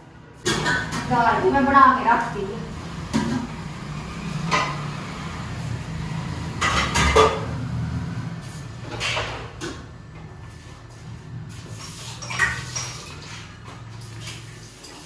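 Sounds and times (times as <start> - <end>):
dishes and cupboard doors clanking: 6.6 - 7.6.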